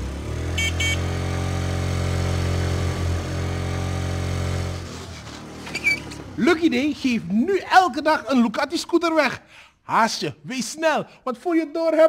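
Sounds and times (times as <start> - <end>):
motor scooter engine running: 0.0 - 6.4.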